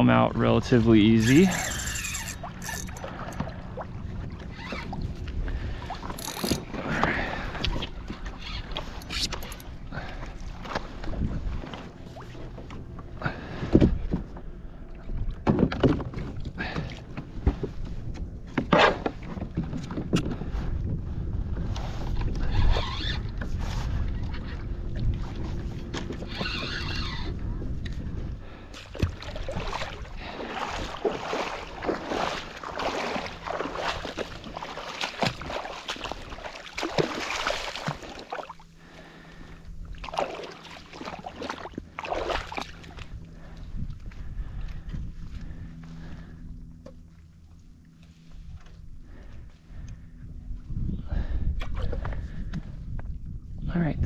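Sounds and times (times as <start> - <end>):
wind rumble on microphone: 0.0 - 38.0, 41.1 - 54.0
water splashing against kayak hull: 28.4 - 50.1.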